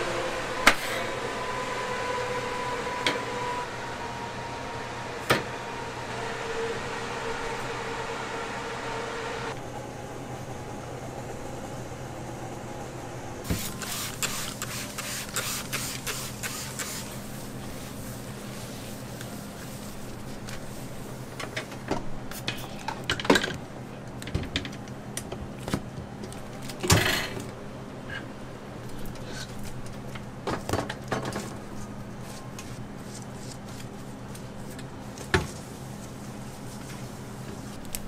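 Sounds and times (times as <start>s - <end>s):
machine hum: 0.0s - 18.7s.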